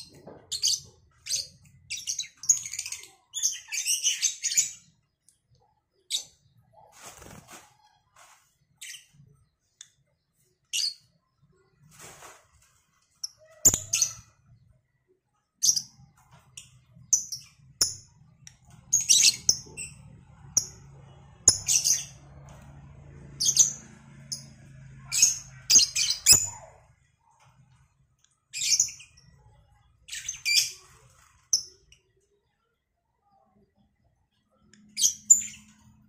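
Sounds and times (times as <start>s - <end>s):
lovebirds chirping: 13.0s - 22.2s, 23.3s - 27.4s.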